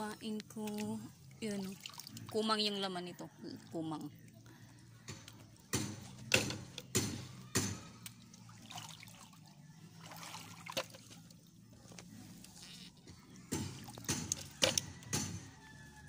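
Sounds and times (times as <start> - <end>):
water trickling around rocks: 0.0 - 6.3, 7.9 - 12.7
water splashes: 0.6 - 2.8, 7.9 - 11.9.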